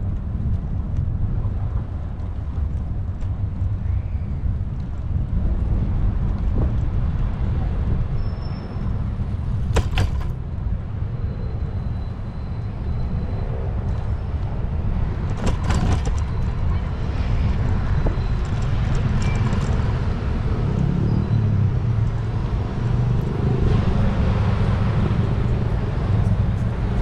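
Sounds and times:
wind and road noise: 0.0s - 27.0s
bicycle clatters: 9.5s - 10.4s, 15.3s - 16.7s.

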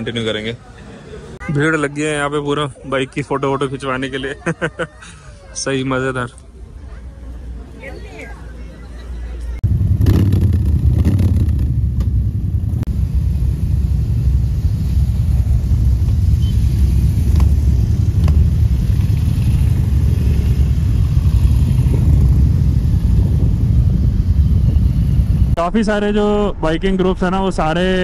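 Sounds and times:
motorcycles rumbling low: 9.6s - 25.6s.

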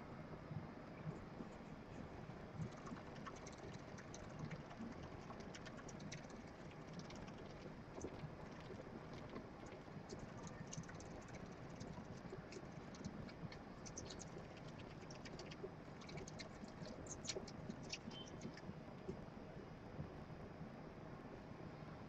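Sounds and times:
hamster claws scratching wall: 2.6s - 18.6s.

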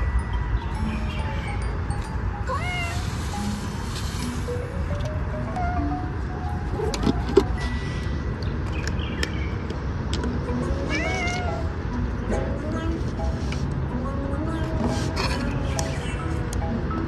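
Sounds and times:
cat meowing: 10.7s - 11.7s.

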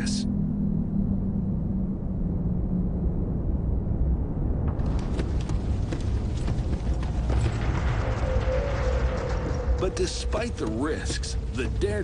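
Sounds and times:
lava crackling and popping: 4.6s - 12.0s.

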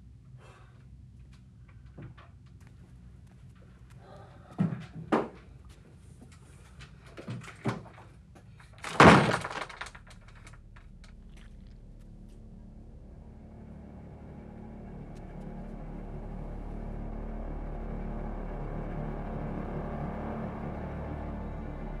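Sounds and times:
heavy crashing thud: 8.8s - 9.9s.

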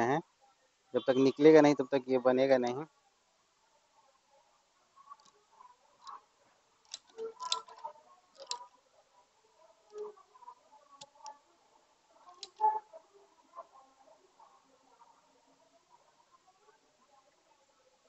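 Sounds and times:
metal tools clicking on plastic: 6.9s - 7.8s, 8.4s - 8.6s, 12.3s - 12.6s.

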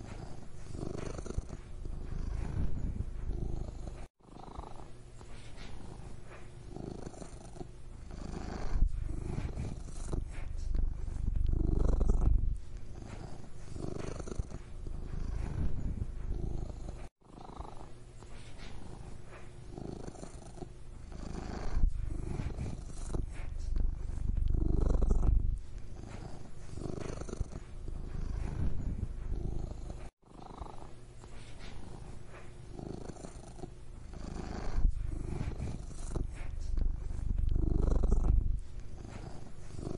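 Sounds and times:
cat purring: 0.0s - 39.9s.

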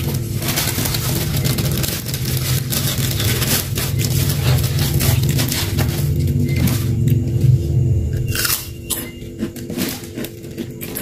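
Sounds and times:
plastic bag rustling: 0.0s - 7.6s
low hum: 0.0s - 11.0s.

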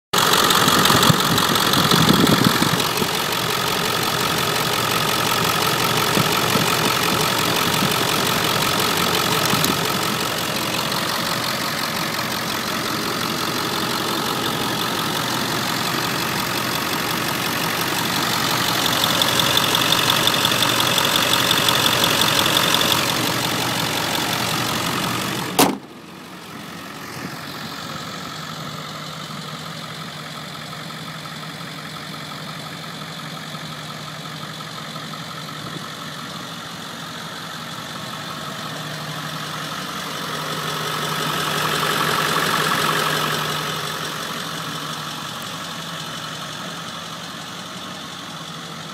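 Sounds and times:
diesel engine idling: 0.1s - 48.9s
car hood slamming shut: 25.6s - 25.9s.

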